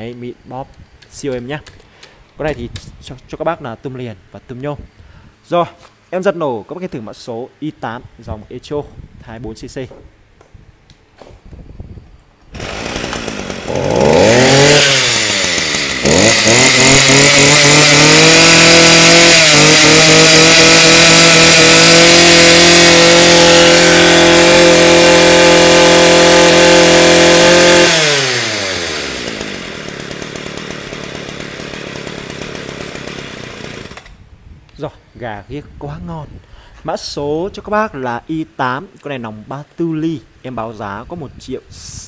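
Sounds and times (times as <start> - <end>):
brush cutter engine revving: 12.5 - 34.2.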